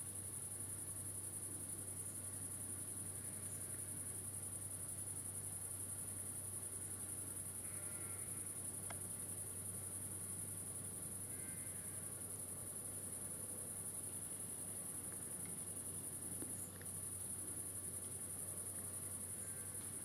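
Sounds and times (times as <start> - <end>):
crickets chirring: 0.0 - 20.0.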